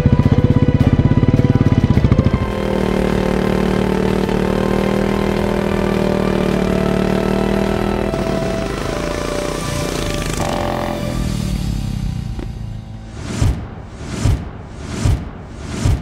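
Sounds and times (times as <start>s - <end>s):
motorcycle engine revving high: 0.0s - 12.6s.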